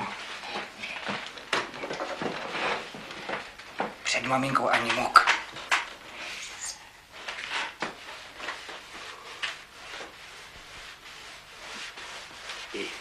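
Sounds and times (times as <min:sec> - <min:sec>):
scrubbing parquet floor by hand: 0:07.1 - 0:13.0.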